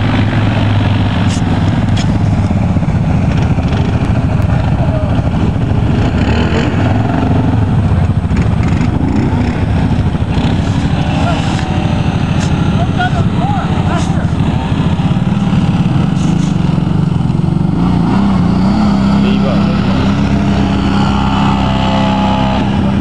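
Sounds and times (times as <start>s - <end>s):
atv engines droning: 0.0s - 23.0s
faint voices: 10.9s - 15.3s.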